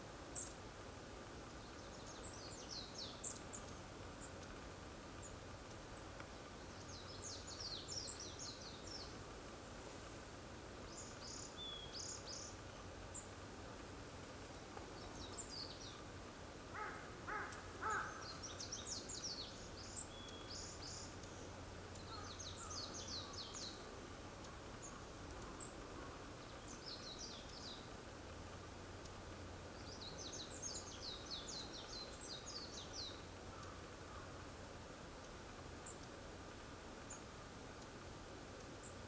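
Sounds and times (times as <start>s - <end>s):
lower-pitched bird calls: 16.7s - 27.9s
high thin bird calls: 16.8s - 18.5s.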